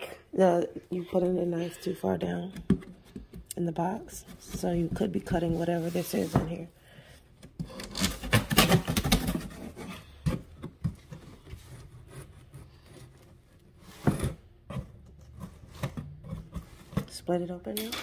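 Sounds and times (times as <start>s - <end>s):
cardboard scraping and rustling: 4.2s - 6.7s, 7.8s - 17.2s
knife cutting cardboard box: 7.7s - 13.2s.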